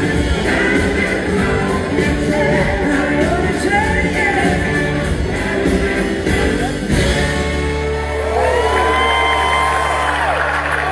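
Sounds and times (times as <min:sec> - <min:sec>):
live rock band with singing: 0:00.0 - 0:09.7.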